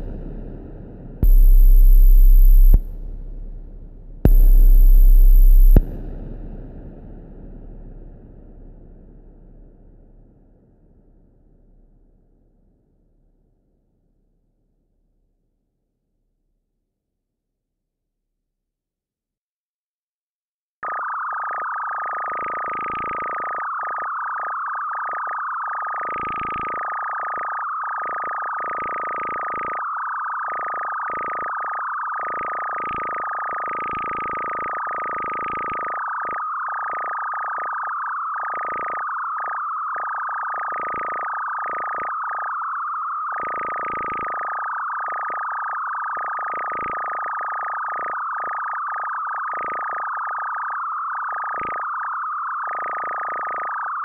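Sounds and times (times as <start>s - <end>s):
high synthesizer tone: 1.2s - 9.7s.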